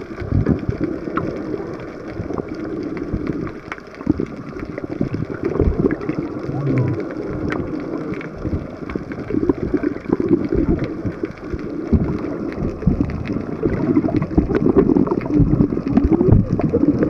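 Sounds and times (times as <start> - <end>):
underwater rushing and bubbling: 0.0 - 17.0
faint clicks: 0.1 - 17.0.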